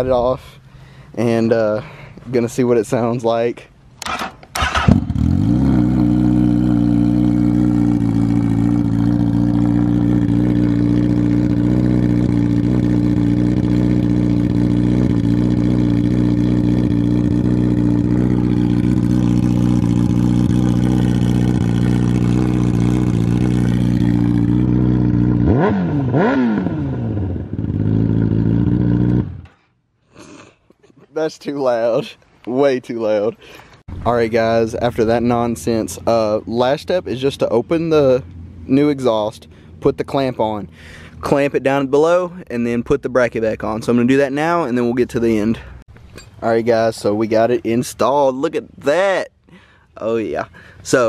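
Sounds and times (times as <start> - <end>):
motorcycle engine idling loudly: 4.8 - 25.4.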